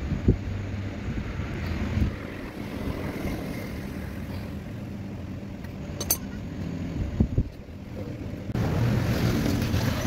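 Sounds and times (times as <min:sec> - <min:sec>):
low background rumble: 0:00.0 - 0:10.0.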